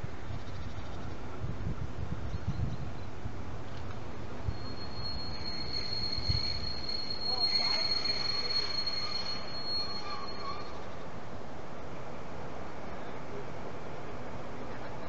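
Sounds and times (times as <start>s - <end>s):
train wheels squealing on rails: 4.3s - 11.2s.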